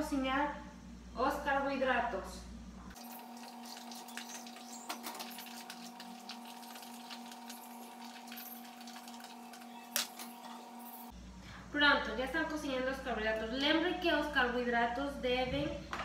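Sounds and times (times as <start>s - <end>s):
faint steady hum: 0.0s - 16.0s
food pattering into water: 3.0s - 10.4s.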